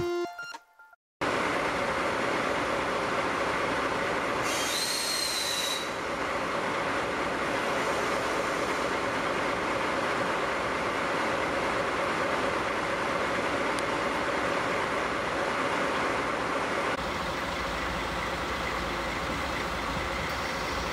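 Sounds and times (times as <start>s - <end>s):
diesel locomotive idling: 1.2s - 20.9s
steam locomotive letting off steam: 4.4s - 6.1s, 7.4s - 9.2s.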